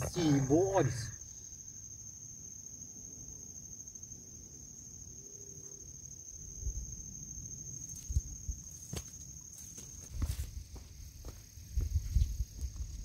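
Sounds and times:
insect trilling: 0:00.0 - 0:09.6.

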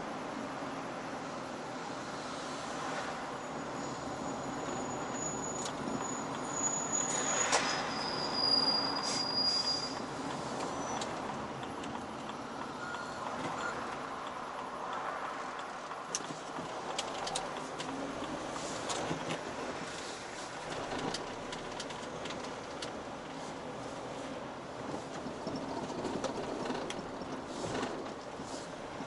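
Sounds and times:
vehicle road and engine noise: 0:00.0 - 0:29.0
high squealing tones: 0:03.8 - 0:11.1.

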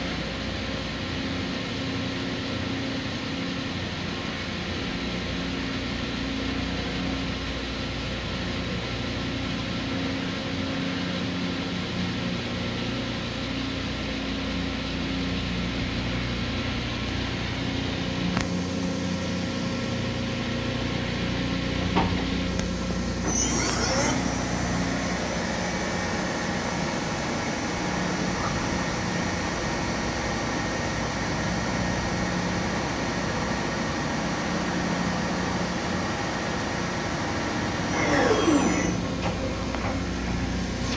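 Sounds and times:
industrial machinery humming: 0:00.0 - 0:40.9
click: 0:22.5 - 0:23.9
short high squeak: 0:23.2 - 0:24.5.

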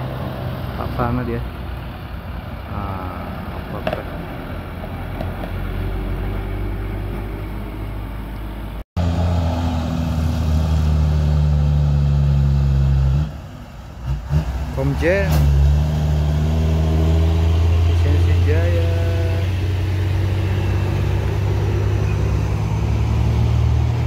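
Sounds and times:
bus diesel engine running: 0:00.0 - 0:24.0
highway traffic noise: 0:00.0 - 0:24.0.

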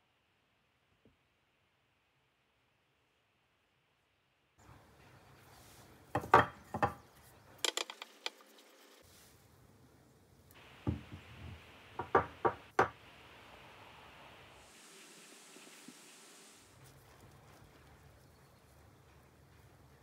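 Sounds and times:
objects knocking and clinking on table: 0:06.2 - 0:07.0, 0:07.6 - 0:08.4.

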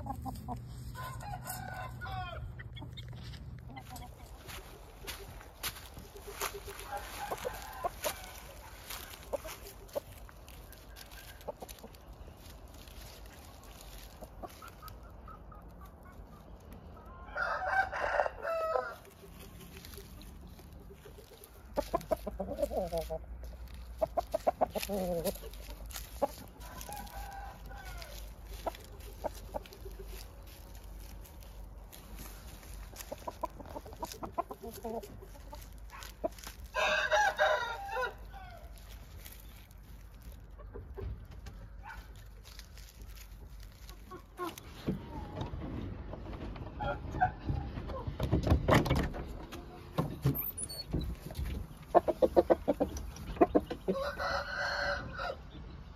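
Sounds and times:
rapid clucking calls: 0:00.0 - 0:00.8, 0:02.5 - 0:12.6, 0:13.2 - 0:17.2, 0:19.1 - 0:27.4, 0:28.3 - 0:36.7, 0:51.2 - 0:54.0
rooster crowing: 0:00.9 - 0:02.6, 0:06.3 - 0:09.2, 0:17.2 - 0:19.1, 0:26.6 - 0:28.3, 0:36.7 - 0:38.8, 0:53.9 - 0:55.5.

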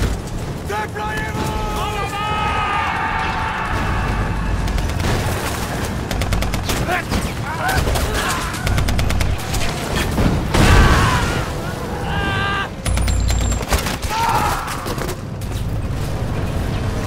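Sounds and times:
men yelling: 0:00.7 - 0:04.9, 0:06.8 - 0:08.8, 0:10.6 - 0:12.8, 0:14.0 - 0:15.1
rifle and machine-gun fire: 0:02.4 - 0:10.8, 0:12.8 - 0:16.8.

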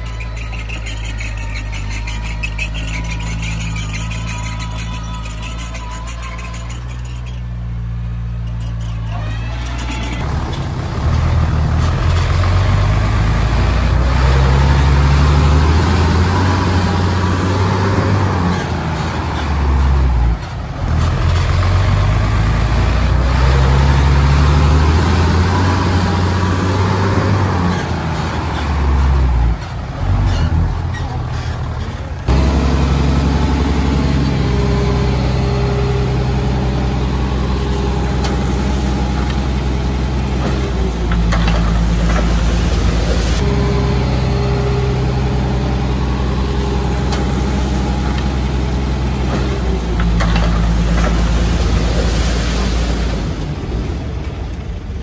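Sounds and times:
heavy diesel engine running: 0:00.0 - 0:55.0.

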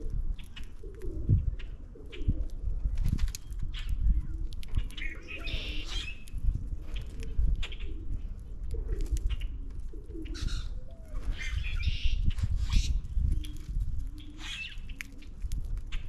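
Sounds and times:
harsh squeaky bird calls: 0:05.0 - 0:06.2, 0:11.3 - 0:13.0, 0:14.3 - 0:15.0.

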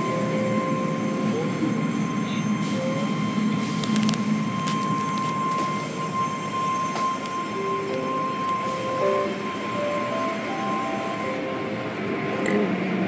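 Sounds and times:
short tones at changing pitches: 0:05.0 - 0:12.0.

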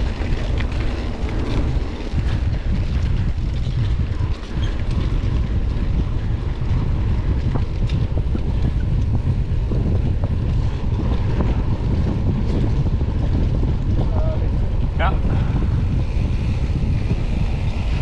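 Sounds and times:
bike rattling clicks: 0:00.0 - 0:14.0
wind buffeting microphone: 0:00.0 - 0:18.0.

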